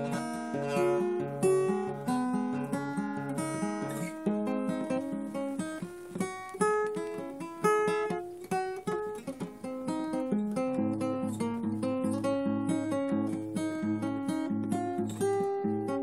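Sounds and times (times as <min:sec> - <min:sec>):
acoustic guitar playing: 0:00.0 - 0:16.0.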